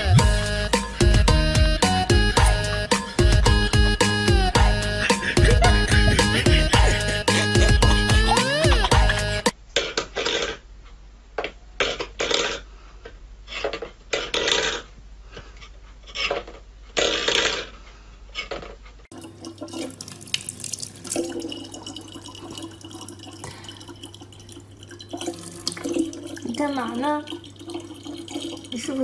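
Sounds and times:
low steady hum: 0:19.2 - 0:29.0
steel bowl scraping and clattering: 0:21.1 - 0:29.0.

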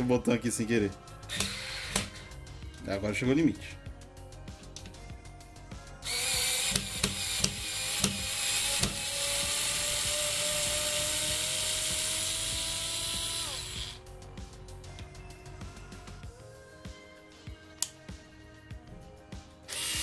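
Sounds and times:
cordless screwdriver whining: 0:01.3 - 0:02.2, 0:06.0 - 0:14.0, 0:19.7 - 0:20.0
sharp clicks: 0:01.3 - 0:02.2.

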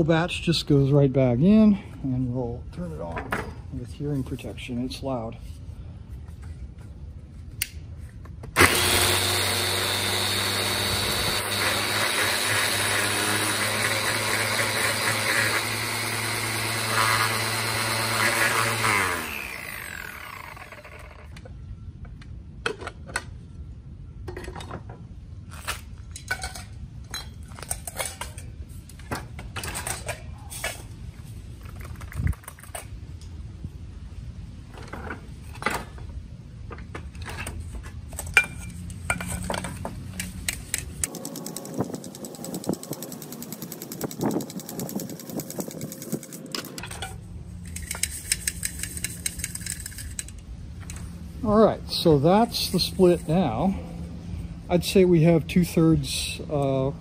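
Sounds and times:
angle grinder winding down: 0:08.6 - 0:21.4, 0:41.1 - 0:46.7.

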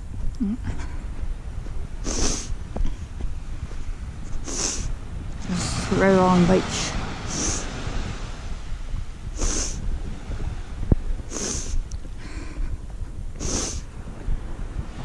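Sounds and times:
wind rumble on microphone: 0:00.0 - 0:15.0
person breathing: 0:07.2 - 0:07.8, 0:11.3 - 0:12.8, 0:13.4 - 0:13.9.

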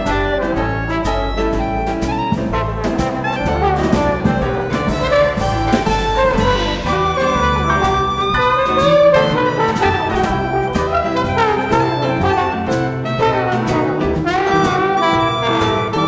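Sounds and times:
clarinet melody: 0:00.0 - 0:16.0
jazz band playing swing: 0:00.0 - 0:16.0
trombone melody: 0:00.0 - 0:16.0
upright bass: 0:00.0 - 0:16.0
drum cymbal strokes: 0:02.4 - 0:09.9.

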